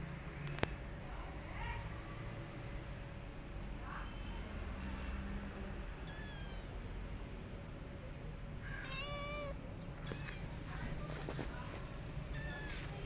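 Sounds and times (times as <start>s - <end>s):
cat meowing: 6.0s - 6.7s, 8.6s - 10.5s, 12.3s - 13.0s.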